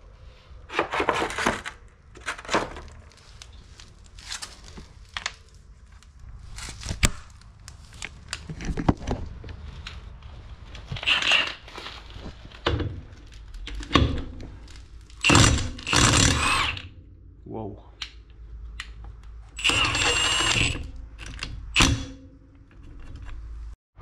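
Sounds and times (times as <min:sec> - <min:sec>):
impact wrench hammering lug nut: 0:15.2 - 0:16.9.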